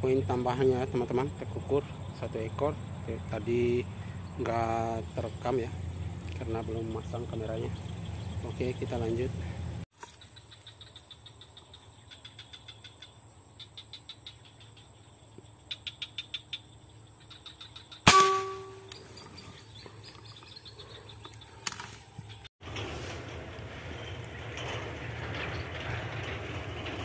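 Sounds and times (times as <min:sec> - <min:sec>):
insects chirping: 0:00.0 - 0:22.5
air rifle shot: 0:18.1 - 0:19.0
steady high tone: 0:18.1 - 0:19.0.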